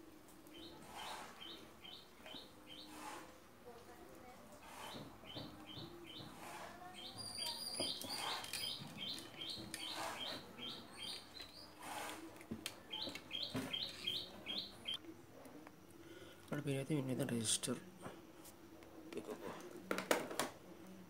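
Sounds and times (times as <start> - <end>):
bird chirping: 0.5 - 3.1, 4.7 - 11.8, 12.8 - 15.0.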